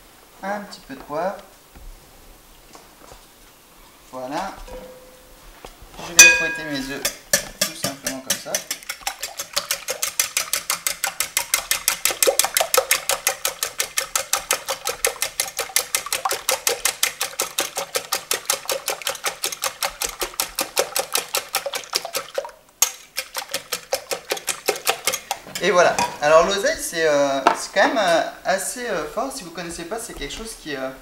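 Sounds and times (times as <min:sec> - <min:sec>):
whisk clicking on glass bowl: 0:06.2 - 0:26.5.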